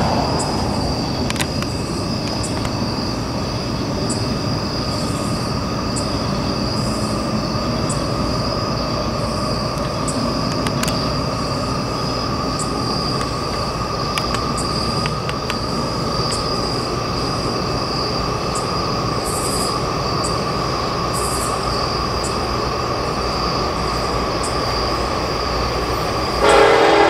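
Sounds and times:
train wheels rumbling on rail: 0.0s - 27.0s
sharp clicks: 1.2s - 2.8s, 9.7s - 11.1s, 13.2s - 15.6s
high wheel squeal: 26.0s - 27.0s.

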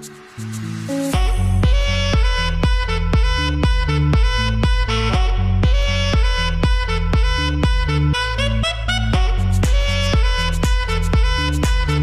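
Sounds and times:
music with steady beat and bass: 0.0s - 12.0s.

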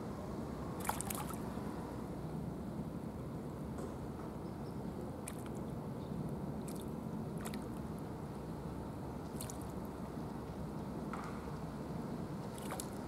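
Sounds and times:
fish splashing at water surface: 0.8s - 1.4s, 5.2s - 5.6s, 6.6s - 7.8s, 9.3s - 9.7s, 12.5s - 13.0s.

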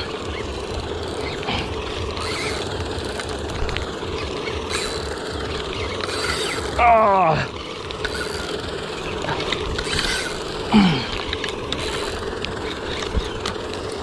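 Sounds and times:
fishing reel whirring rattle: 0.0s - 14.0s
person exclaiming: 6.8s - 7.5s.

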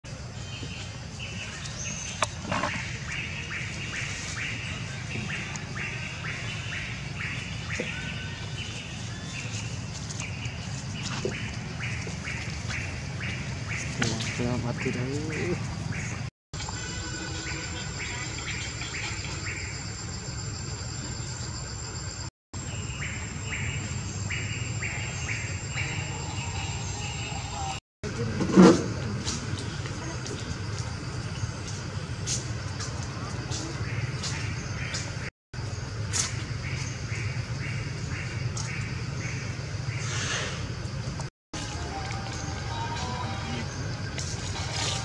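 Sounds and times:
insects whining: 14.3s - 28.4s, 35.6s - 45.0s.

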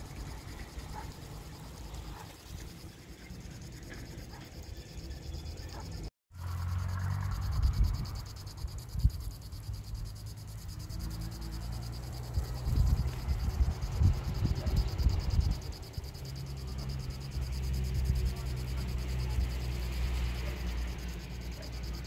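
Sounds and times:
insects trilling: 0.0s - 22.0s
wind rumbling on microphone: 7.2s - 10.3s, 11.1s - 20.5s.

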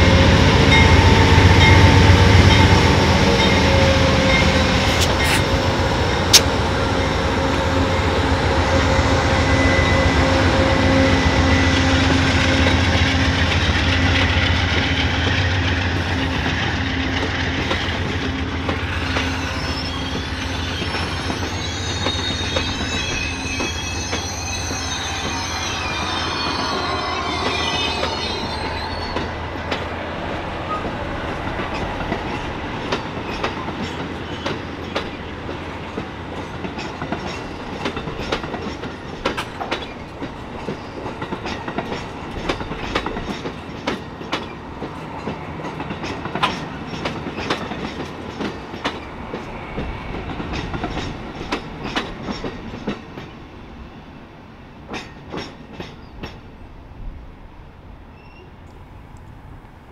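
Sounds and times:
train rumbling: 0.0s - 59.9s
wheels clacking over rail joints: 30.7s - 53.4s.

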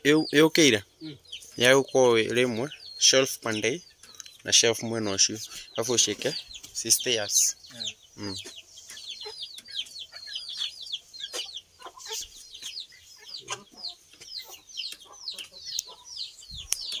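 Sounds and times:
chickens clucking: 0.0s - 17.0s.

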